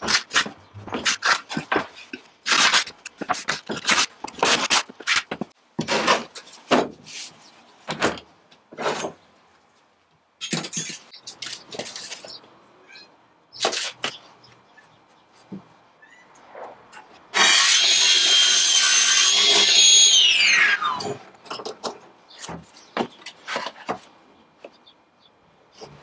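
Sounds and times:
boards and tape measure clattering: 0.0s - 9.2s, 10.4s - 12.4s, 13.6s - 14.2s.

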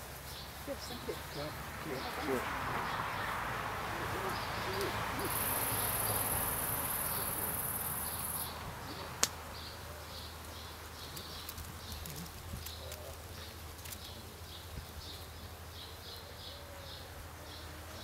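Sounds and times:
bush-cricket high-pitched hiss: 4.6s - 8.6s.

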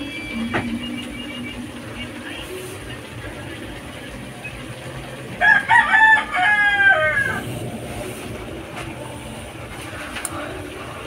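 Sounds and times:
rooster crowing: 5.4s - 7.6s.

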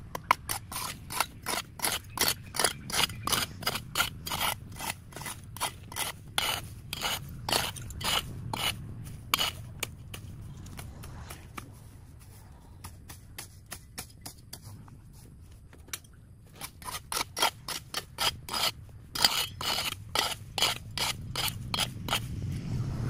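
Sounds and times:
low rumble: 3.2s - 12.9s, 20.4s - 23.0s.

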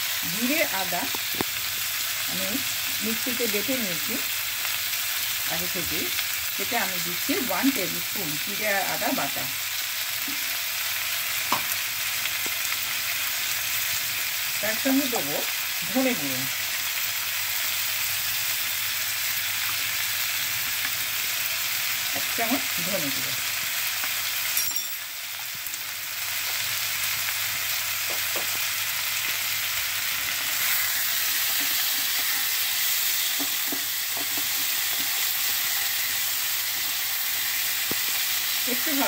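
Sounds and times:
vegetables sizzling in oil: 0.0s - 39.0s.

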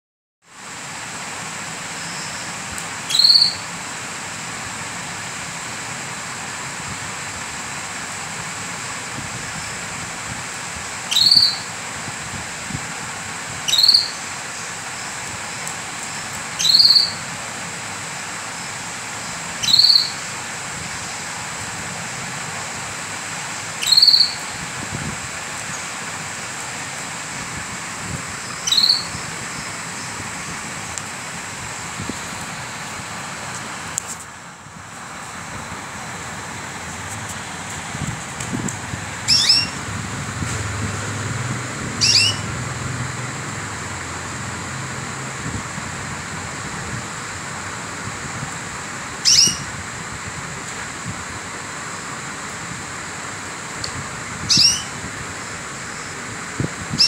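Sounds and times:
steady background hiss: 0.5s - 57.0s
canary chirp: 2.0s - 2.5s, 3.1s - 3.7s, 11.1s - 11.7s, 13.6s - 15.1s, 16.1s - 17.2s, 19.6s - 20.3s, 23.7s - 24.6s, 28.4s - 30.2s, 39.3s - 39.8s, 42.0s - 42.5s, 49.2s - 49.7s, 54.4s - 55.0s.

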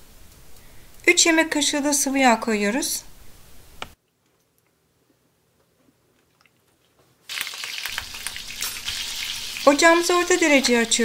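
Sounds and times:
butter and oil sizzling in a pan: 7.3s - 11.0s.

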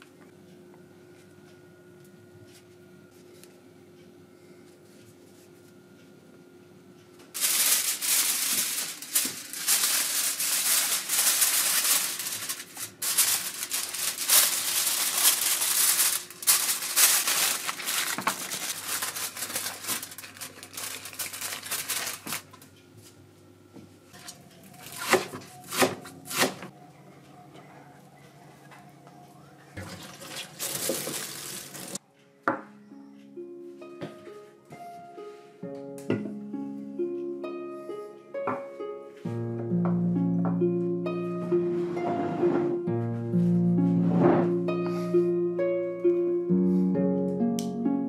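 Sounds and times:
aluminium foil crinkling: 7.4s - 22.7s, 24.1s - 26.7s, 30.0s - 32.0s
knife chopping on cutting board: 25.0s - 26.7s.

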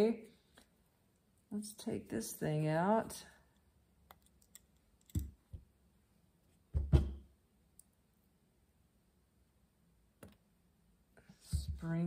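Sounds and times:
faint click of small parts: 3.5s - 5.6s
screwdriver thump on padded mat: 6.7s - 7.2s.

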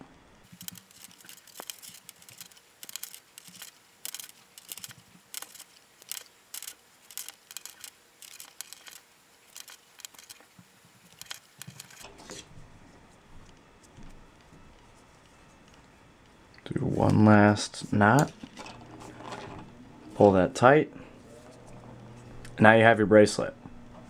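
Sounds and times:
cord sliding and rubbing: 18.0s - 19.7s.

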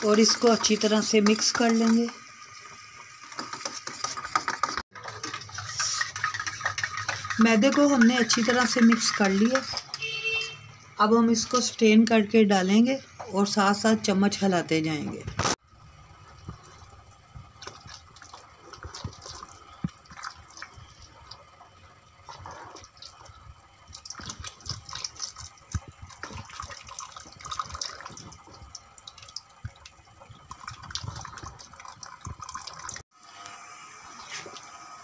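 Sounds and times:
liquid splashing and sloshing: 3.3s - 10.1s, 16.2s - 33.0s.

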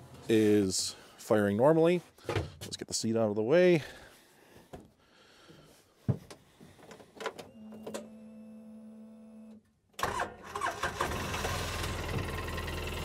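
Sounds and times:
engine starting: 10.0s - 13.0s
fuel pump whining: 10.0s - 13.0s.

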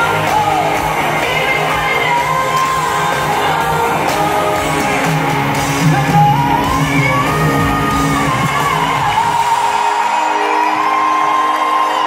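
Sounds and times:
live pop music with female vocal: 0.0s - 12.0s
crowd shouting: 8.1s - 12.0s.

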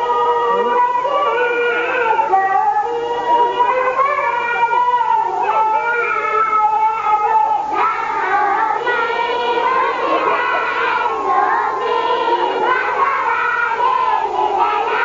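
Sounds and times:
crowd shouting and singing: 6.9s - 15.0s.

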